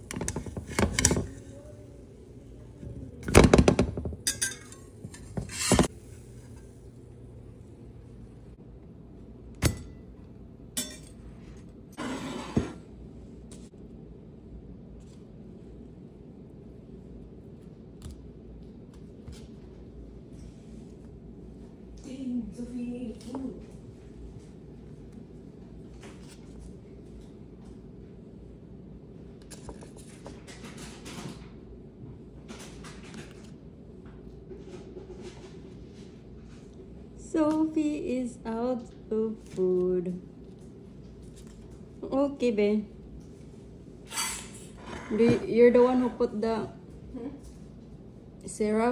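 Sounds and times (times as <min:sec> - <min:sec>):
steady low hum: 0:00.0 - 0:30.5, 0:31.4 - 0:48.9
utensil clinking on ceramic plate: 0:04.0 - 0:05.9, 0:10.8 - 0:11.2
utensil scraping plate: 0:04.0 - 0:06.7, 0:12.0 - 0:12.9, 0:44.1 - 0:46.1.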